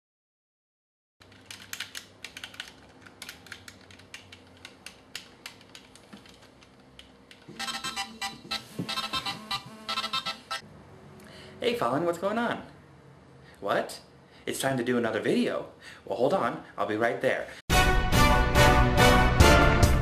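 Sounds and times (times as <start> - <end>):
phone ringtone: 7.6 - 10.6.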